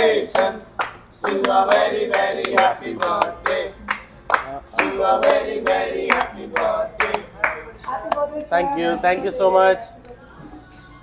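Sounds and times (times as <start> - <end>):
rhythmic clapping: 0.0 - 8.5
group singing birthday song: 0.0 - 10.9.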